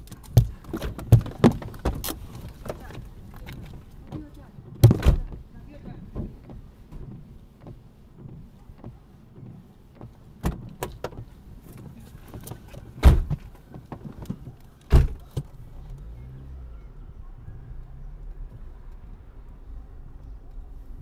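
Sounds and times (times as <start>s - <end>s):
knocks and thuds on car body: 0.3s - 15.6s.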